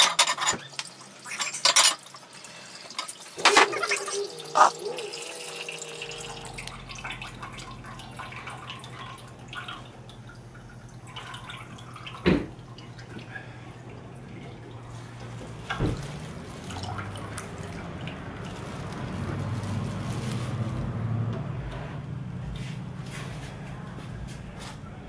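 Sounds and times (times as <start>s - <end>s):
juice trickling and dripping: 0.5s - 21.3s.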